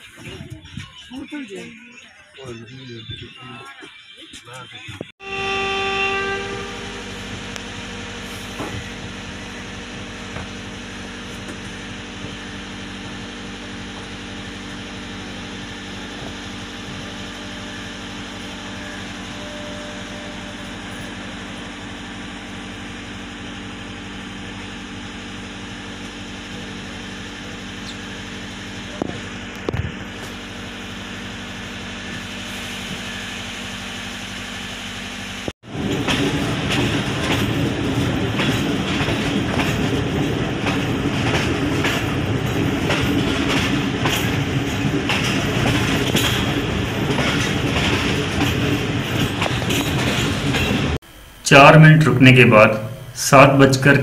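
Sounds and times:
train horn: 0:05.2 - 0:08.0, 0:17.4 - 0:21.2
diesel engine idling: 0:06.6 - 0:51.4.

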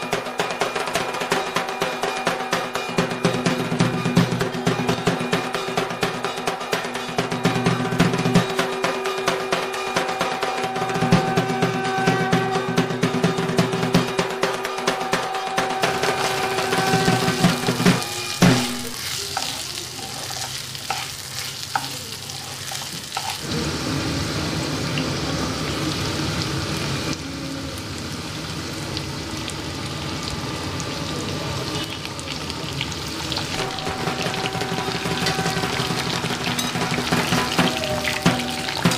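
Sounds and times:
spatula scraping pan: 0:15.8 - 0:23.4
vegetables sizzling in oil: 0:15.8 - 0:38.9.

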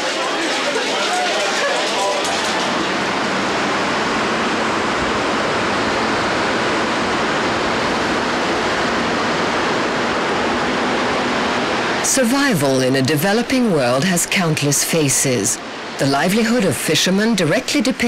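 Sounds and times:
water rushing: 0:00.0 - 0:18.0.

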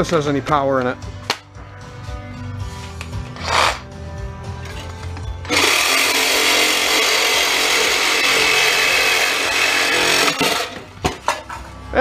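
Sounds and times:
reciprocating saw cutting sheet metal: 0:05.5 - 0:10.8.

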